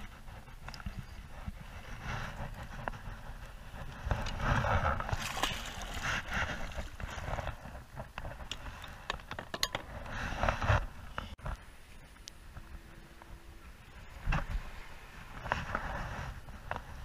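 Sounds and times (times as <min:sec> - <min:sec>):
water splashing: 0:04.7 - 0:07.6.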